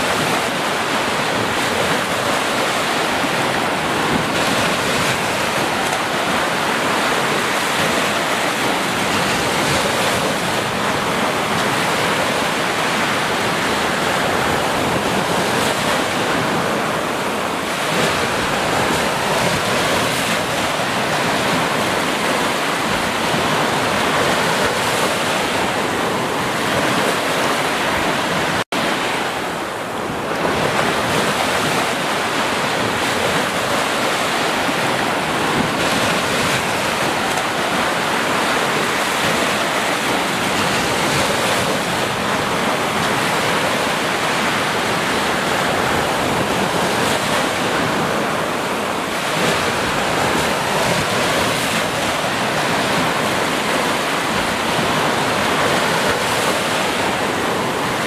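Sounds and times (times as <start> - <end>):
waves washing up a beach: 0.0 - 58.0.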